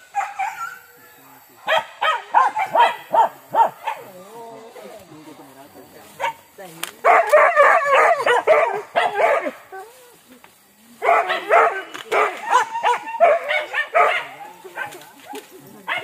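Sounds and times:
dogs barking: 0:00.0 - 0:01.0, 0:01.6 - 0:04.2, 0:06.2 - 0:10.0, 0:11.0 - 0:16.0.

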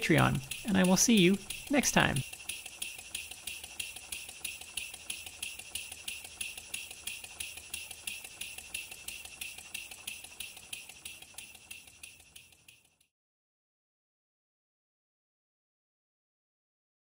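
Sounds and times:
model steam engine ticking: 0:00.0 - 0:13.1.

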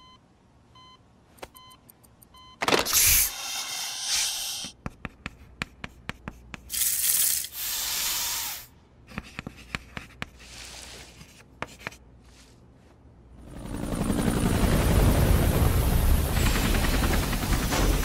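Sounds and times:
chalk tapping on blackboard: 0:04.5 - 0:06.8, 0:09.1 - 0:10.5, 0:11.2 - 0:12.0
chalk scraping on blackboard: 0:07.7 - 0:12.5.

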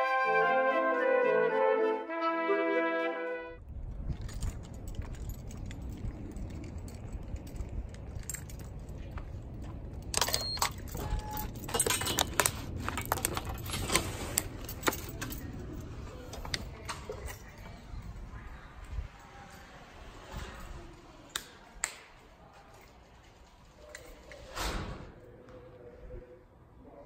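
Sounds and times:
keys jangling: 0:03.9 - 0:18.2
glass door clicks and clinks: 0:10.1 - 0:15.7.

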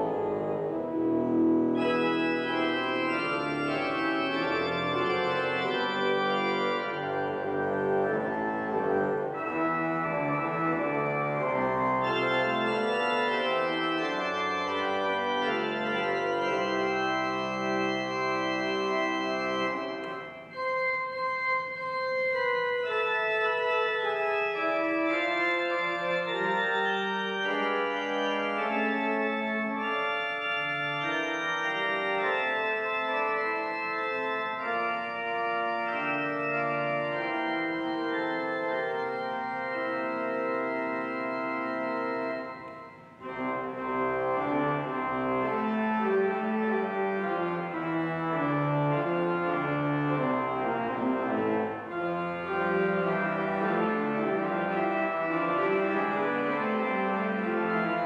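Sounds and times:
organ playing sustained chords: 0:00.0 - 0:58.0.

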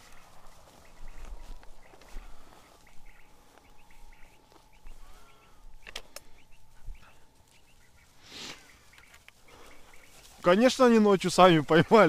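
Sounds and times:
faint bird chirps: 0:00.0 - 0:10.5
walking through dry grass: 0:00.0 - 0:12.0
sharp clicks: 0:05.7 - 0:06.4.

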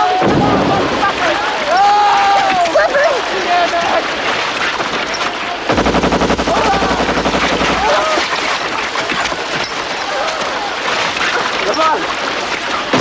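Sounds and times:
men shouting: 0:00.0 - 0:04.1, 0:06.3 - 0:08.4
battle noise: 0:00.0 - 0:11.7
machine-gun fire: 0:05.7 - 0:09.0.

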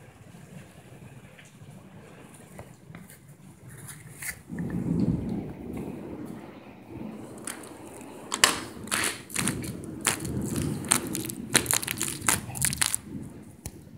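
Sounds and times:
rain rushing: 0:00.0 - 0:03.7, 0:04.4 - 0:13.9
sharp knocks and crackles: 0:07.4 - 0:13.2.

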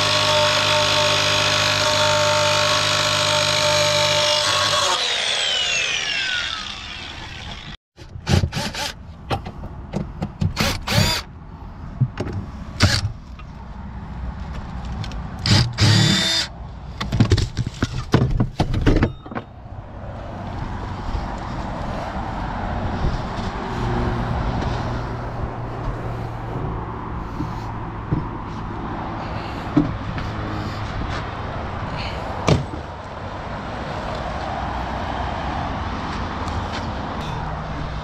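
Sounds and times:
angle grinder spinning down: 0:02.7 - 0:07.8.

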